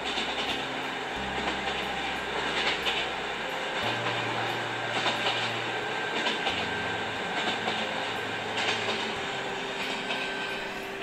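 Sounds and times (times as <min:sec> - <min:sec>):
train rumbling on rails: 0:00.0 - 0:11.0.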